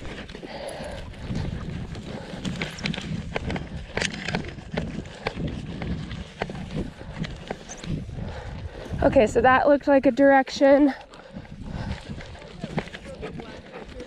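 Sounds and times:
footsteps in forest undergrowth: 0.0 - 9.0
low wind rumble: 0.0 - 14.0.

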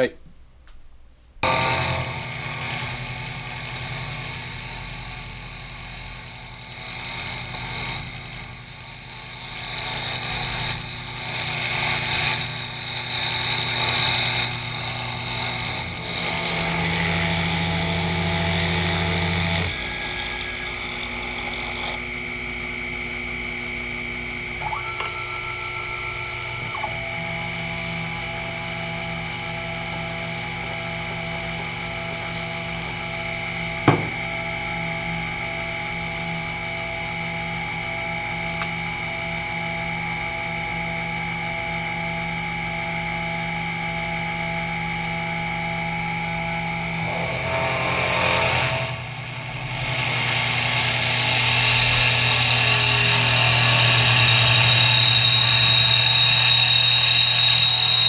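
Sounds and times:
drill bit squealing: 1.4 - 22.2, 24.5 - 32.7, 46.6 - 58.0
machine humming: 1.4 - 38.8, 45.1 - 58.0
short steady tone: 24.6 - 28.7.

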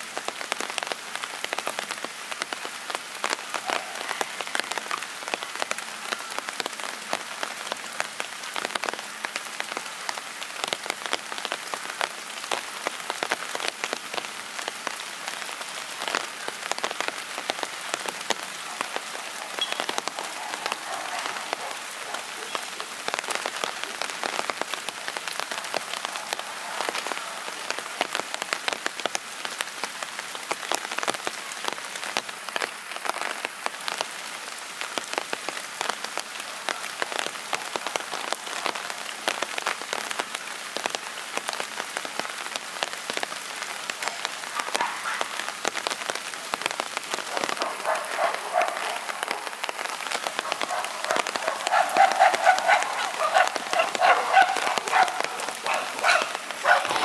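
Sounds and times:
steady rain: 0.0 - 57.0
raindrops tapping a surface: 0.1 - 57.0.

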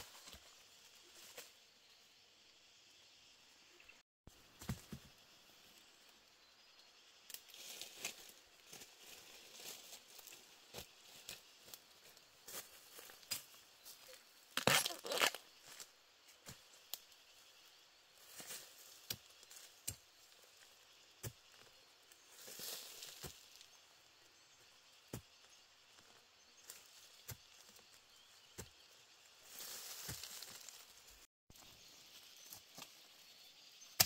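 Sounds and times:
dry bamboo leaves rustling: 7.3 - 15.8, 22.3 - 23.8, 29.4 - 31.3.

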